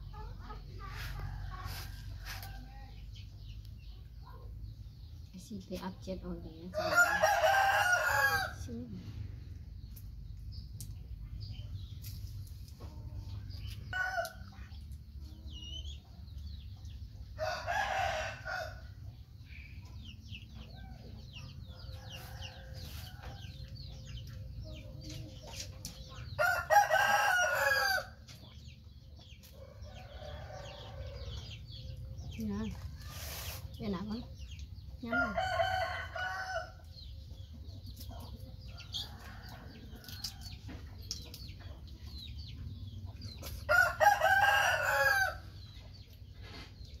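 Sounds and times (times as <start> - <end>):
rooster crowing: 6.8 - 8.6, 26.4 - 28.1, 43.7 - 45.4.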